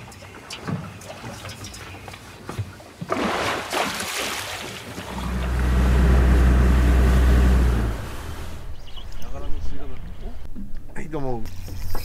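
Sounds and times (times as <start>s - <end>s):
motorboat engine drone: 5.1s - 8.8s.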